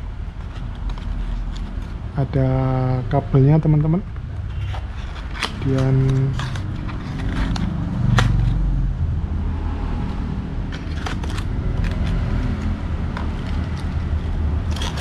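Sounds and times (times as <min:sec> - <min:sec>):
steady low rumble: 0:00.0 - 0:15.0
packaging crackling and clicking: 0:04.6 - 0:08.6, 0:10.7 - 0:15.0.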